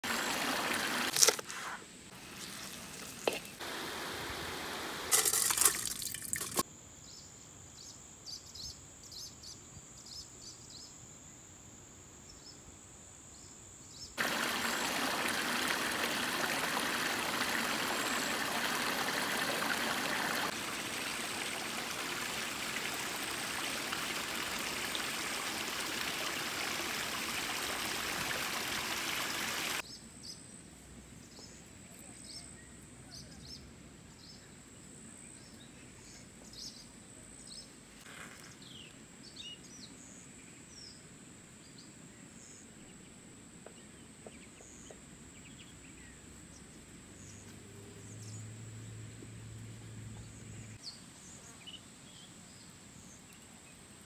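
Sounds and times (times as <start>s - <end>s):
stream trickling over rocks: 0.0s - 1.5s, 2.1s - 6.6s, 14.2s - 29.8s.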